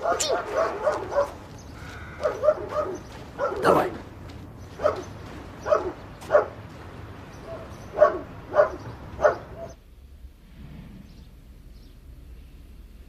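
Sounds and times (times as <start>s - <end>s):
dog barking: 0.0s - 1.5s, 2.1s - 4.1s, 4.7s - 6.6s, 7.3s - 9.8s.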